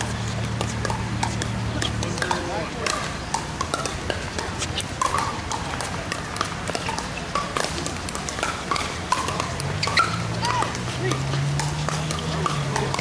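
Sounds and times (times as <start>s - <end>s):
paddles hitting plastic ball: 0.0s - 13.0s.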